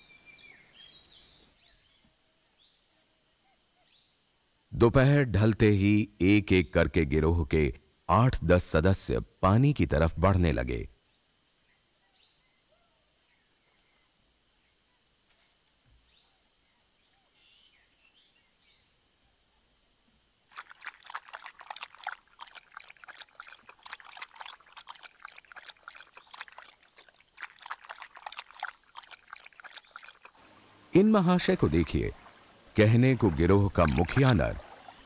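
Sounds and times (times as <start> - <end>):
high-pitched insect chorus: 0.0 - 35.0
animal lapping water: 20.5 - 35.0.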